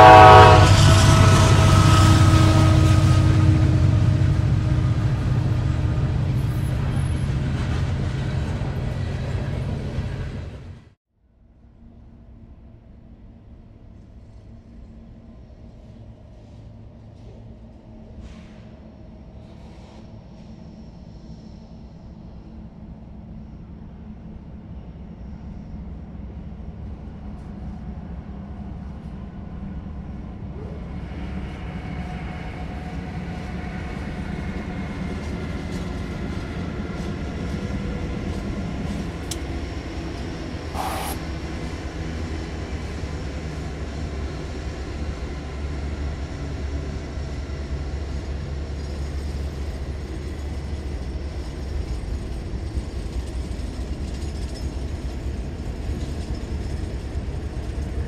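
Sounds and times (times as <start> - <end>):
diesel freight train passing: 0.0 - 10.9, 12.8 - 58.0
brief sharp noise: 40.8 - 41.2.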